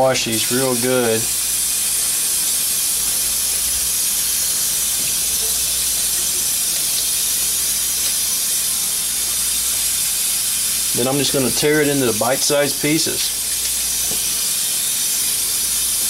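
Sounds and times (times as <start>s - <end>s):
faucet running into a steel sink: 0.0s - 16.0s.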